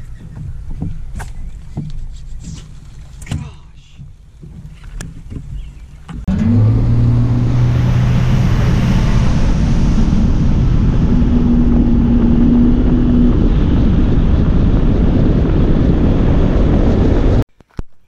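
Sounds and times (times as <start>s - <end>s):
outboard motor running: 4.0s - 17.3s
wind on microphone: 4.0s - 17.5s.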